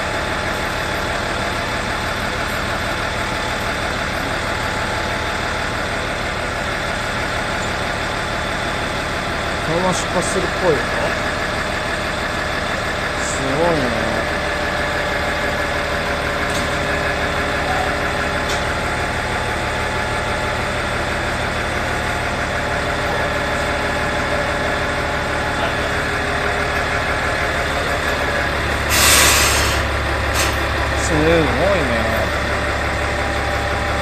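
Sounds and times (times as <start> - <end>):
diesel engine idling: 0.0 - 34.0
air release hiss: 28.9 - 30.5.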